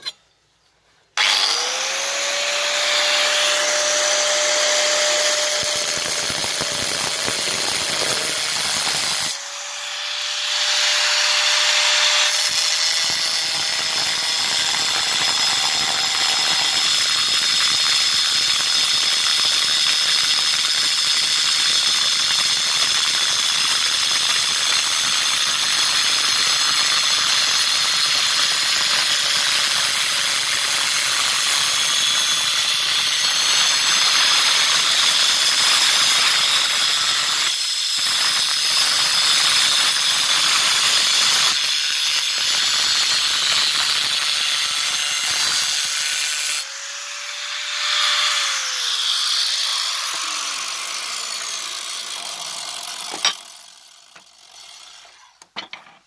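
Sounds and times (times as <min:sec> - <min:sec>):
angle grinder motor whine: 0:01.2 - 0:17.2, 0:46.0 - 0:54.4
grinding wheel hissing on stone: 0:03.2 - 0:09.5, 0:10.5 - 0:56.0.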